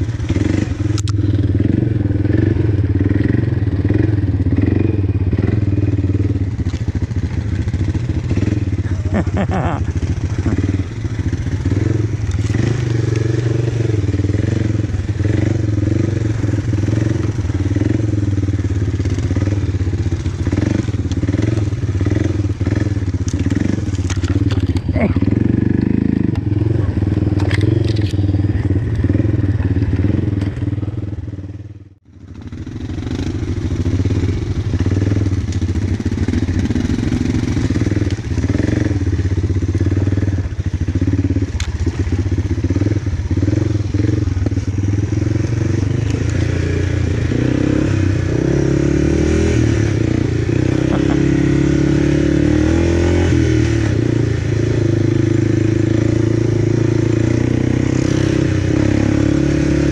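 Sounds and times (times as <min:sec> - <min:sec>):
quad engine revving: 0:00.0 - 0:59.9
clatter: 0:22.6 - 0:25.2, 0:27.3 - 0:30.8.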